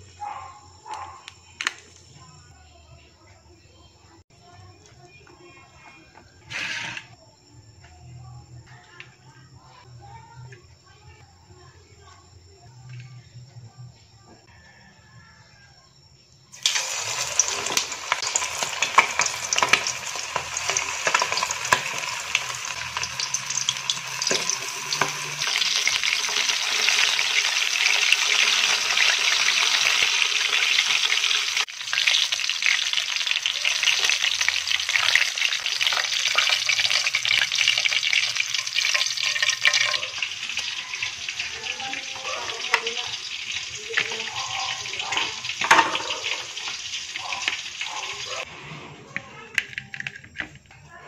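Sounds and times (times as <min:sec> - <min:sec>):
chicken sizzling in hot oil: 0:16.5 - 0:48.8.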